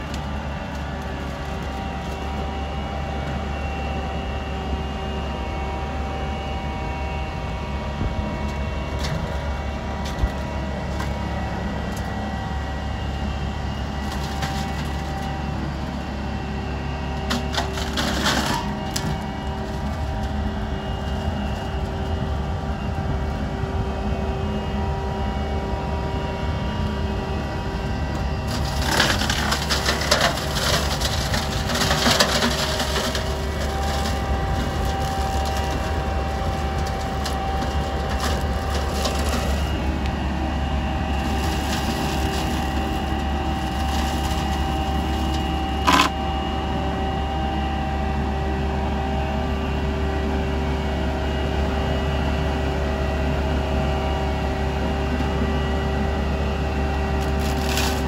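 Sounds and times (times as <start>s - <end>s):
tractor running: 0.0s - 58.0s
flail head shredding branches: 41.1s - 46.1s, 57.2s - 58.0s.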